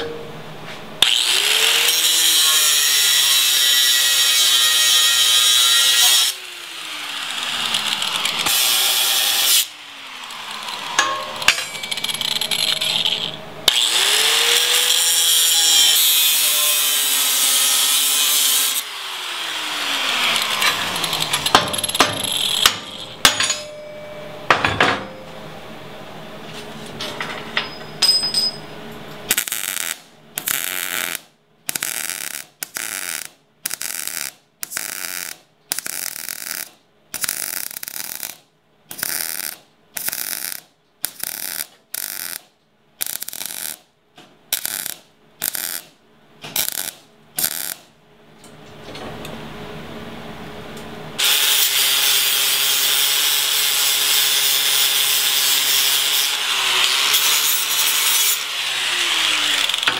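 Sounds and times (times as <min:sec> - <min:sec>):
metal knocks and clanks of handling: 0:11.0 - 0:12.1, 0:21.4 - 0:25.2, 0:27.0 - 0:28.7
welder arc bursts: 0:29.3 - 0:43.8, 0:44.5 - 0:45.9, 0:46.6 - 0:47.9.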